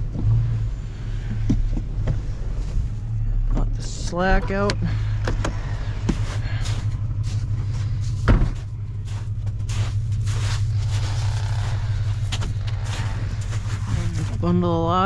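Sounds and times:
truck engine idling: 0:00.0 - 0:15.0
truck door shutting: 0:08.2 - 0:08.7.

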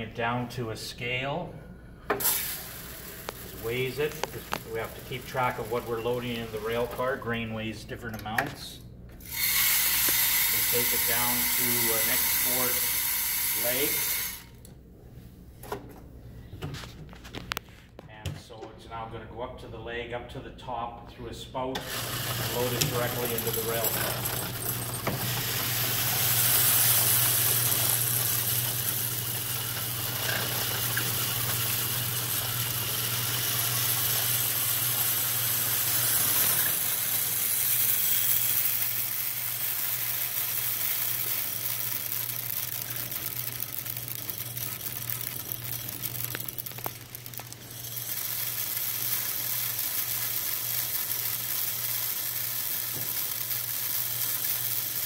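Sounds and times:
grain pouring hiss: 0:02.2 - 0:07.2, 0:09.2 - 0:14.6, 0:21.8 - 0:55.0.

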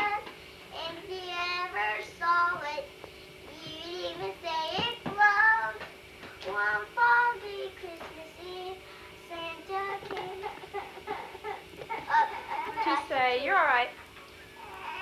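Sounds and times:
girl singing unaccompanied: 0:00.0 - 0:10.8.

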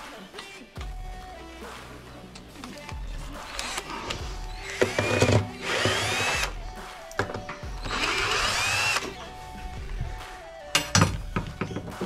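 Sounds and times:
impact driver spinning: 0:02.6 - 0:06.6, 0:07.8 - 0:09.2.

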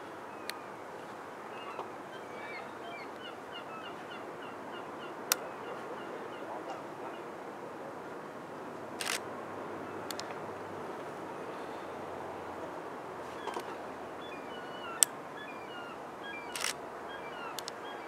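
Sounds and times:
waterfront background noise: 0:00.0 - 0:18.0
sharp clicks: 0:09.0 - 0:09.2, 0:10.1 - 0:10.4, 0:16.5 - 0:16.8, 0:17.6 - 0:17.8
high chirping bird calls: 0:13.4 - 0:18.0.

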